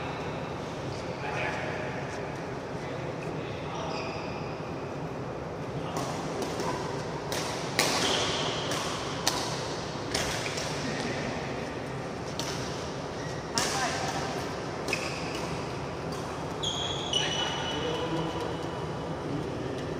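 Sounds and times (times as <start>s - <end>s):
badminton racket hitting shuttlecock: 5.9s - 11.2s.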